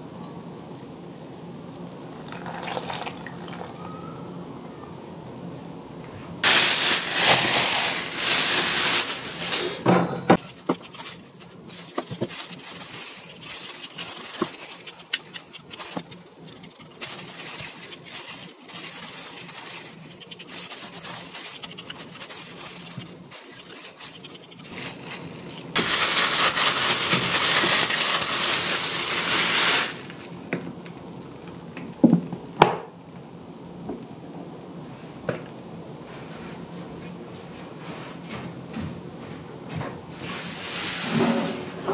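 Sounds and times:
plastic bag rustling: 0:06.4 - 0:30.4.

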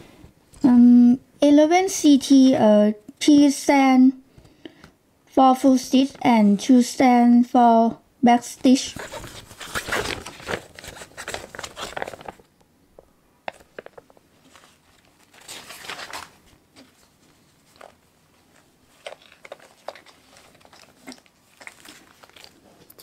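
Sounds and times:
paper and plastic rustling: 0:08.8 - 0:12.5, 0:13.5 - 0:23.0.

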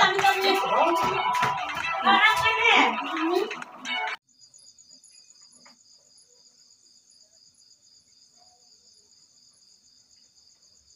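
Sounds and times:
insects chirring: 0:04.2 - 0:10.9.

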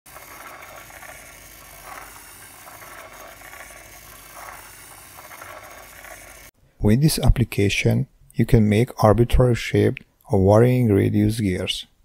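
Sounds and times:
small motor whirring: 0:00.1 - 0:06.6.

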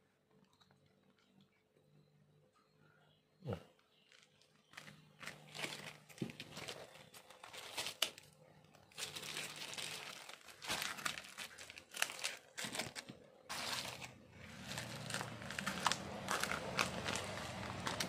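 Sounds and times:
packaging crinkling and rustling: 0:03.9 - 0:18.0
scissors cutting packaging: 0:04.8 - 0:18.0.

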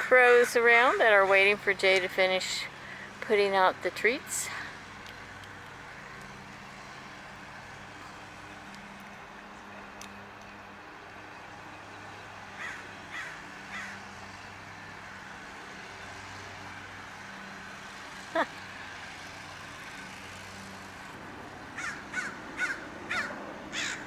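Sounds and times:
low hum of traffic: 0:00.0 - 0:24.0
distant crows cawing: 0:12.5 - 0:14.2, 0:21.7 - 0:24.0.

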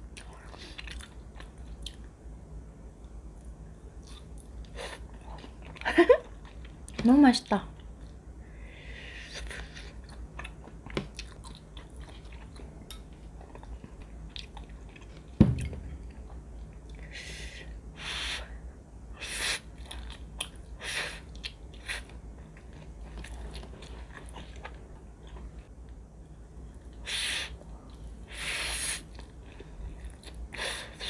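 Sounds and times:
dull thump: 0:15.4 - 0:15.9.

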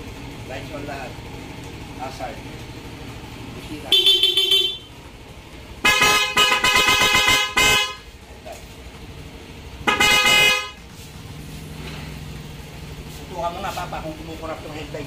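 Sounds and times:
motorcycle horn honking: 0:03.8 - 0:05.0, 0:05.8 - 0:08.1, 0:09.8 - 0:10.9.

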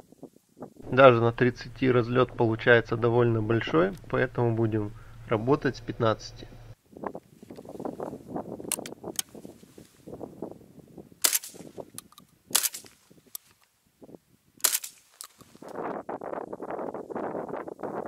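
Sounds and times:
shotgun shots: 0:11.2 - 0:11.7, 0:12.5 - 0:13.0, 0:14.6 - 0:15.1.

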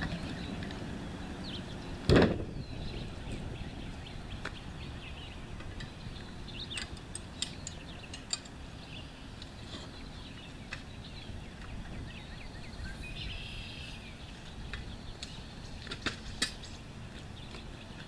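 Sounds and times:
birds chirping faintly: 0:00.0 - 0:18.0
heavy thump: 0:02.1 - 0:02.5.

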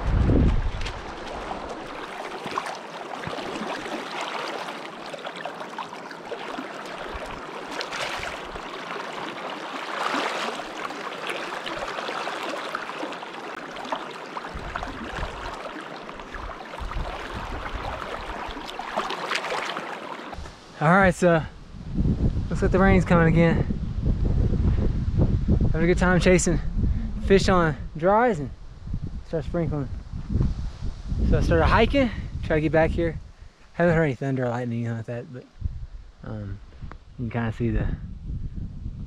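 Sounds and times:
wind rumble on microphone: 0:00.0 - 0:02.1, 0:14.5 - 0:15.6, 0:16.2 - 0:18.7, 0:20.4 - 0:34.1, 0:35.5 - 0:39.0
water splashes: 0:00.0 - 0:20.4
stream rushing over rocks: 0:00.8 - 0:20.4.

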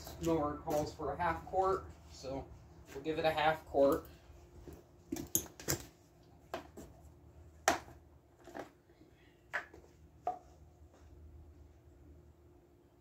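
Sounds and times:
footsteps in work boots: 0:00.0 - 0:03.5.

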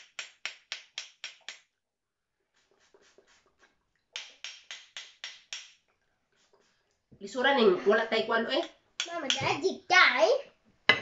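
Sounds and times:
hand claps: 0:00.0 - 0:01.7, 0:04.2 - 0:05.8.

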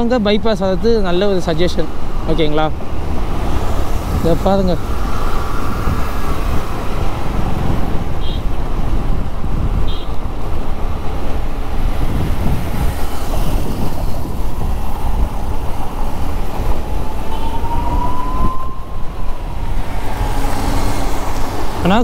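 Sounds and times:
traffic noise: 0:00.0 - 0:22.0
wind on microphone: 0:02.8 - 0:22.0
scooter whine rising: 0:14.1 - 0:22.0.

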